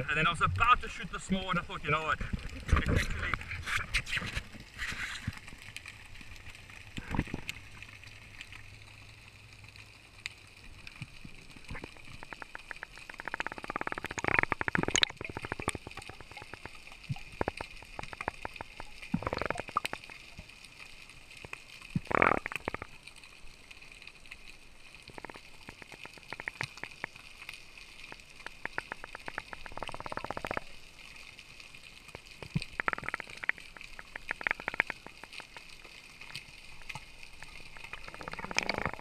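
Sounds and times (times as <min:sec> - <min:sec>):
water gurgling underwater: 0:00.0 - 0:07.8, 0:11.0 - 0:20.5, 0:21.9 - 0:23.1, 0:25.1 - 0:27.2, 0:28.0 - 0:30.8, 0:32.5 - 0:35.8, 0:36.8 - 0:39.0.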